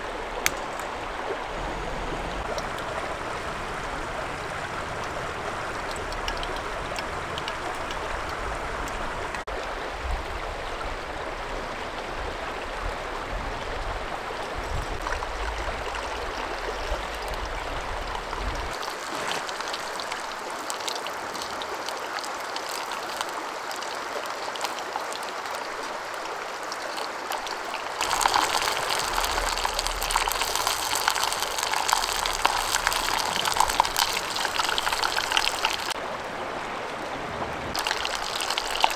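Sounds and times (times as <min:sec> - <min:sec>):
dumplings sizzling in oil: 0:27.2 - 0:36.0, 0:37.8 - 0:38.9.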